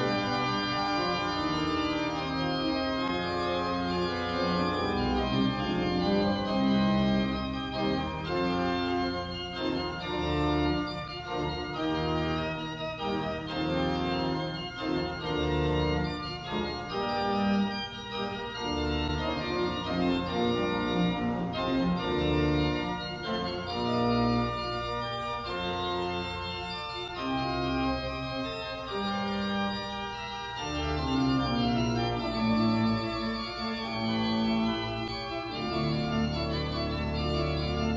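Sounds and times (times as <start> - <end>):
organ playing held chords: 0.0 - 37.9.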